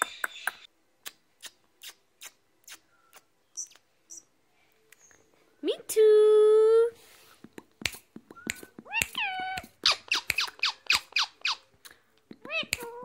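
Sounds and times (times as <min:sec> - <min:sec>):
parakeet screeching and chirping: 0:08.9 - 0:11.7.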